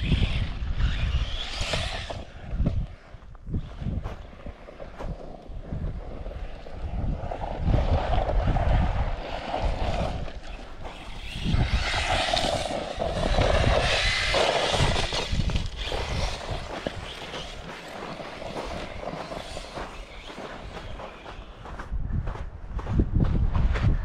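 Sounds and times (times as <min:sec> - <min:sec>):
electric motor whining: 0:00.0 - 0:02.4, 0:10.9 - 0:21.8
tyres spraying gravel: 0:10.9 - 0:21.6.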